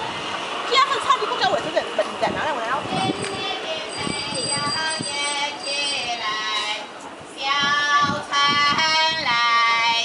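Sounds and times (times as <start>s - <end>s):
woman singing in a high voice: 2.8s - 10.0s.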